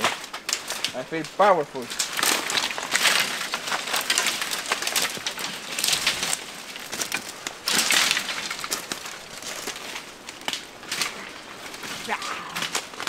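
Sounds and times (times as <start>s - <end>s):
dry sticks cracking and snapping: 0.0s - 13.0s.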